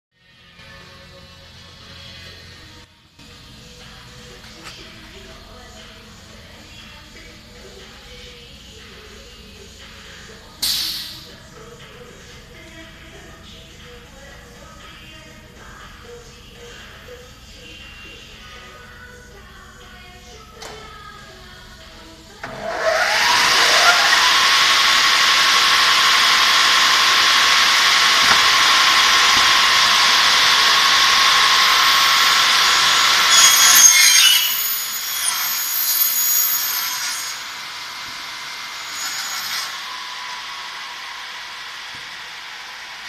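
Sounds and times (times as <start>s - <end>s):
electric saw motors whining: 22.4s - 43.0s
saw blades cutting aluminium: 22.4s - 43.0s.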